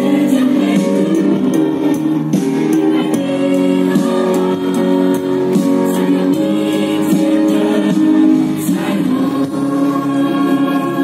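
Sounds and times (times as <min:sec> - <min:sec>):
band accompaniment: 0:00.0 - 0:11.0
choir of young voices singing: 0:00.0 - 0:11.0.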